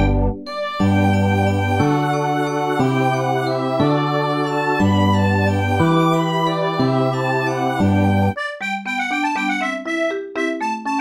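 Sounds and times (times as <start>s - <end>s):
sustained chords: 0.0s - 8.4s.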